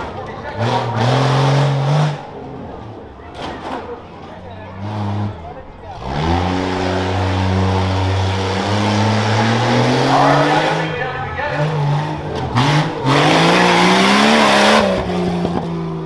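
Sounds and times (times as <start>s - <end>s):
truck engine revving: 0.0s - 16.0s.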